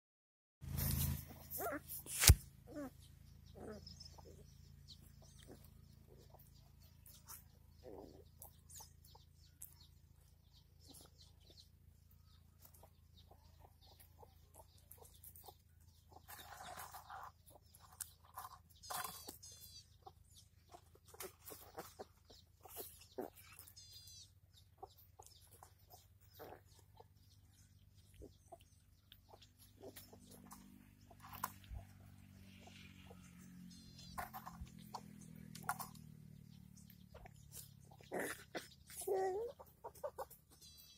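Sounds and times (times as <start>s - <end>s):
puppies scuffling on dirt: 0.6s - 3.0s, 3.6s - 40.9s
rustle: 0.6s - 3.0s
high-pitched puppy calls: 1.3s - 2.0s, 2.6s - 18.0s, 19.1s - 36.0s, 36.7s - 40.9s.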